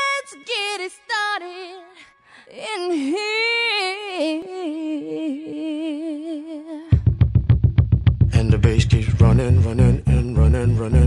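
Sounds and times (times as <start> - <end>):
high voice singing: 8.4 - 11.0.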